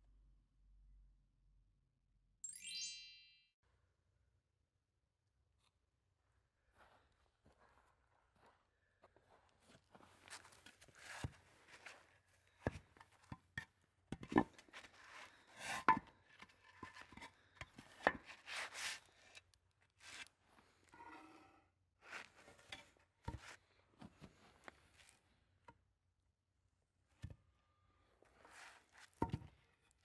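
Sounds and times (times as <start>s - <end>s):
scraping rubs on concrete blocks: 14.2s - 19.4s.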